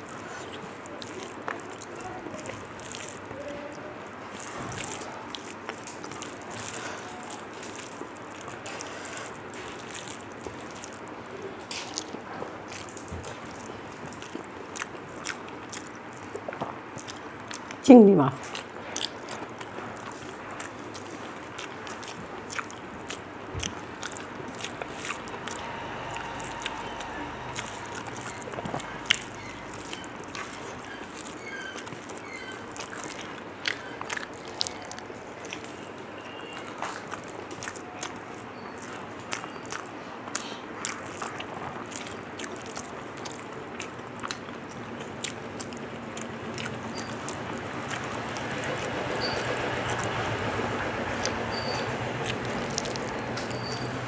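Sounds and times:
person chewing food: 0.0s - 17.8s, 18.4s - 54.0s
wet mouth clicks and smacks: 18.4s - 35.9s, 36.6s - 54.0s.

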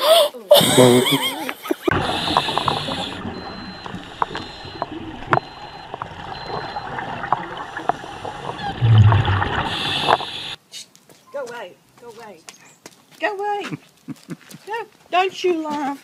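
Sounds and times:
diver breathing through regulator: 1.9s - 4.8s, 7.6s - 10.6s
bubbles gurgling underwater: 1.9s - 10.6s.

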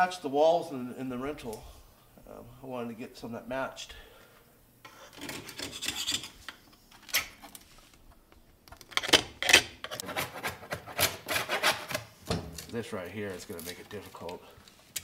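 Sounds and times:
hand tool scraping wood: 9.9s - 12.0s.

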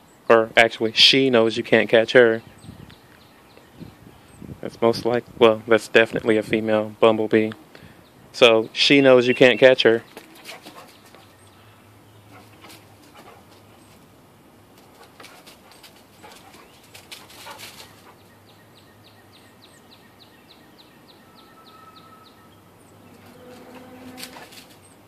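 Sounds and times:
songbird short high notes: 8.8s - 9.9s, 21.2s - 24.6s
dog rustling in dry leaves: 23.1s - 25.0s.

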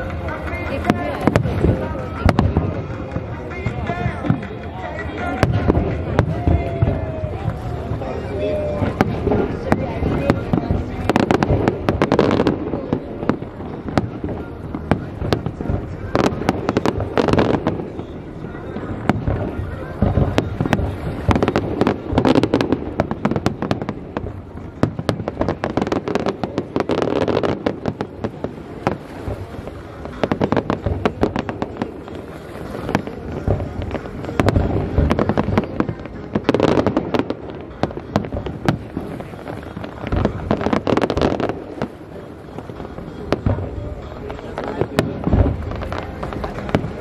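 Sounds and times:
fireworks crackling and popping: 0.0s - 47.0s.

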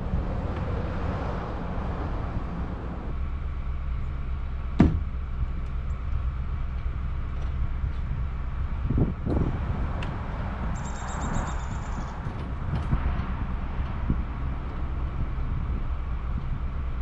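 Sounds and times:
pickup truck engine idling: 1.8s - 17.0s
dull thumps: 4.8s - 5.1s
sharp knock: 4.8s - 5.1s.

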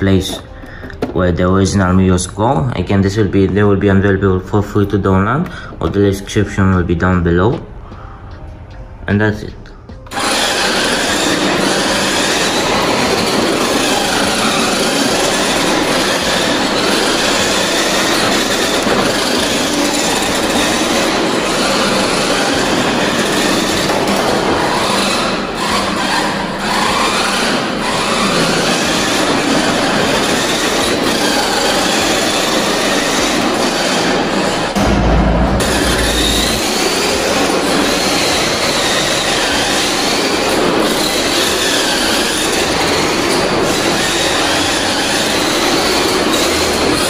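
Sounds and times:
gears and tyres rattling on tile: 10.0s - 34.8s, 36.4s - 47.0s
rc car motor whine: 10.1s - 34.9s, 35.8s - 47.0s.

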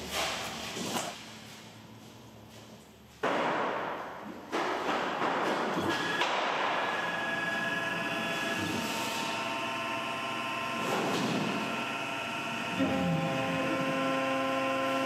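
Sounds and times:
mill spindle whining: 5.8s - 15.0s.

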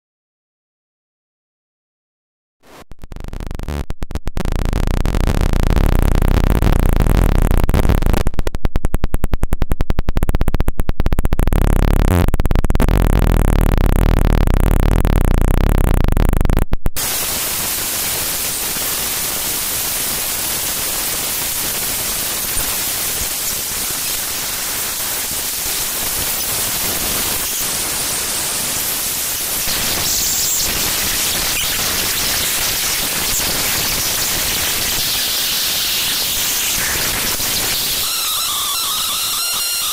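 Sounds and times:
fast stuttering digital pulses: 4.4s - 39.9s
loud digital buzz: 11.4s - 39.9s
steady static hiss: 17.0s - 39.9s.

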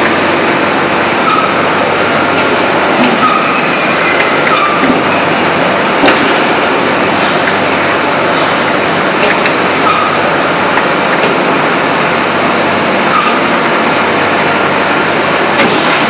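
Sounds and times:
forging press roaring: 0.0s - 16.0s.

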